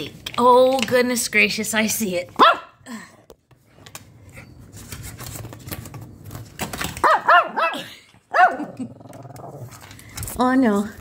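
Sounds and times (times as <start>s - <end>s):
small dog barking: 2.4s - 2.8s, 7.0s - 8.7s.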